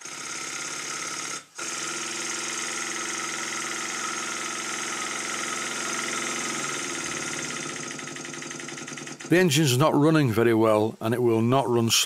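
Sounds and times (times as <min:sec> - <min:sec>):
model steam engine chuffing: 0:02.9 - 0:09.4.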